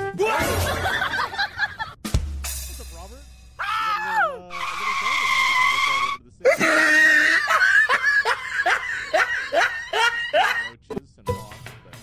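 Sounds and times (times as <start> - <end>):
person laughing high-pitched: 6.5 - 10.8.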